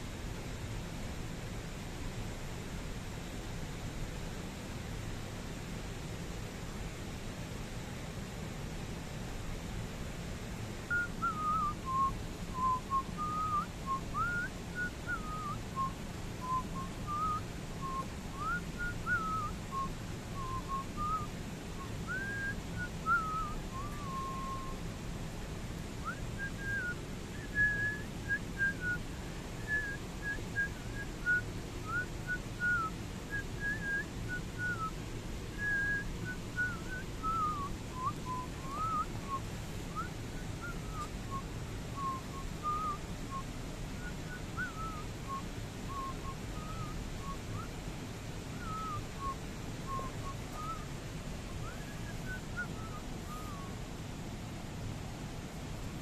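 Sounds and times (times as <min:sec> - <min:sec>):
low background rumble: 0:00.0 - 0:56.0
person whistling a tune: 0:10.9 - 0:21.3, 0:22.1 - 0:24.7, 0:26.0 - 0:29.0, 0:29.6 - 0:34.9, 0:35.6 - 0:39.4, 0:42.0 - 0:43.4, 0:44.0 - 0:47.4, 0:48.6 - 0:50.8, 0:51.6 - 0:53.7.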